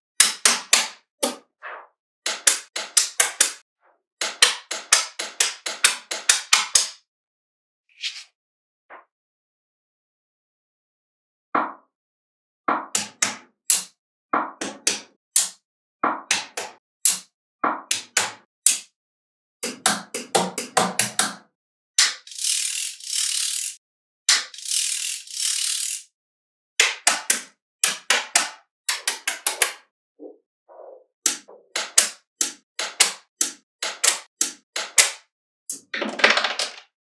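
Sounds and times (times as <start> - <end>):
magnetic balls clicking together: 22.0 - 26.0.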